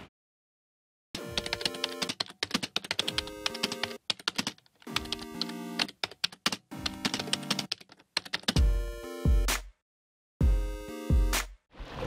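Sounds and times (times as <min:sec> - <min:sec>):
keyboard typing clicks: 0:01.4 - 0:08.6
background music with held chords: 0:04.9 - 0:06.0, 0:08.5 - 0:09.8, 0:10.4 - 0:11.6.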